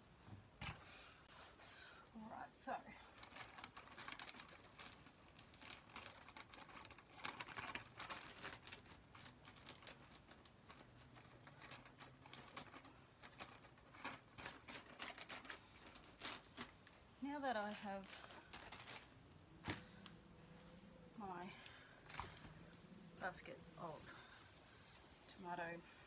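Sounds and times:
plastic bag crinkling: 0:03.0 - 0:20.7.

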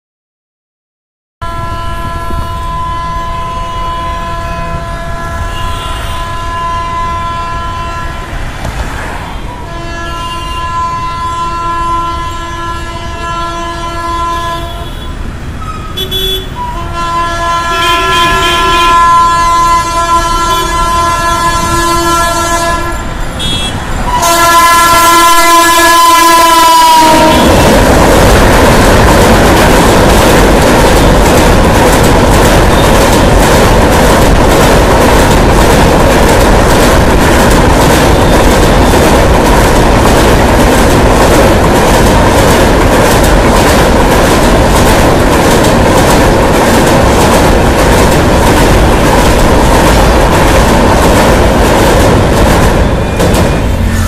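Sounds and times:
locomotive horn blasts: 0:01.4 - 0:08.4, 0:09.5 - 0:27.8, 0:53.6 - 0:54.0
passing train rumble: 0:01.4 - 0:54.0.

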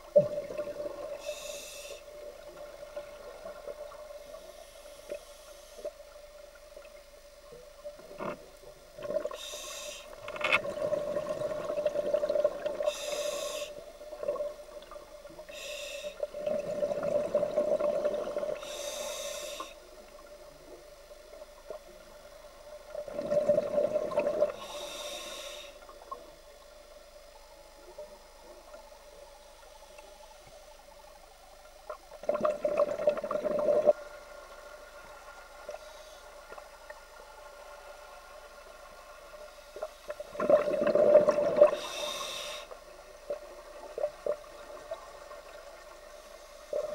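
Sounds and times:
steady hum: 0:00.0 - 0:46.9
regulator inhalation hiss: 0:00.9 - 0:02.3, 0:04.2 - 0:06.2, 0:09.3 - 0:10.5, 0:12.8 - 0:14.0, 0:15.4 - 0:16.3, 0:18.5 - 0:20.0, 0:24.5 - 0:25.9, 0:35.8 - 0:36.5, 0:41.6 - 0:43.3
gurgling exhaled bubbles: 0:10.6 - 0:12.9, 0:16.3 - 0:18.6, 0:23.0 - 0:24.6, 0:32.2 - 0:34.0, 0:40.3 - 0:41.8.

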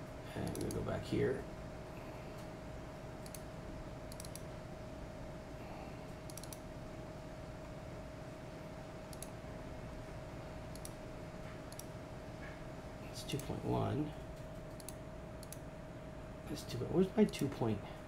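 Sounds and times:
steady faint hum: 0:00.0 - 0:18.0
computer mouse clicks: 0:00.4 - 0:00.8, 0:03.2 - 0:03.5, 0:04.1 - 0:04.5, 0:06.2 - 0:06.7, 0:09.1 - 0:09.4, 0:10.7 - 0:11.0, 0:11.7 - 0:11.9, 0:14.4 - 0:15.6.

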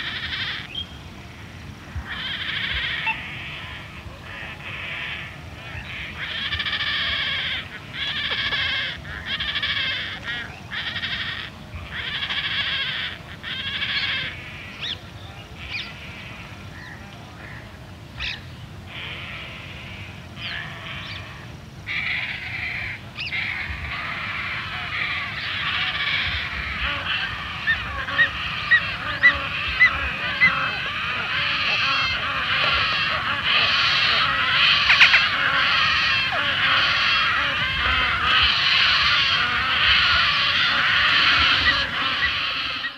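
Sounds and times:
distant water birds: 0:00.0 - 0:42.9
stork fledglings calling: 0:02.0 - 0:42.9.

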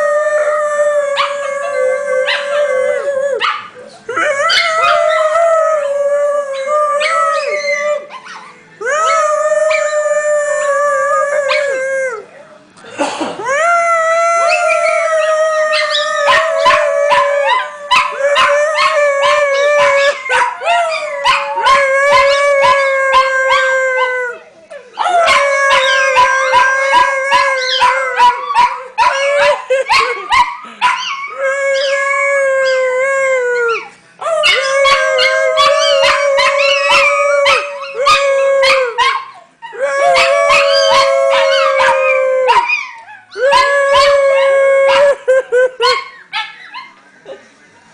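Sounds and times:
dogs howling together: 0:00.0 - 0:12.3, 0:13.8 - 0:47.0
dogs yipping: 0:07.0 - 0:08.6, 0:25.0 - 0:31.9, 0:34.4 - 0:39.5, 0:45.8 - 0:47.0.

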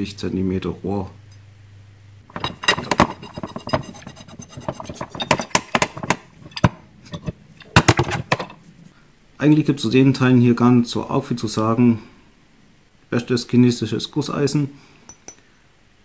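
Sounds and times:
metal fittings clinking on pipe: 0:02.3 - 0:08.6.

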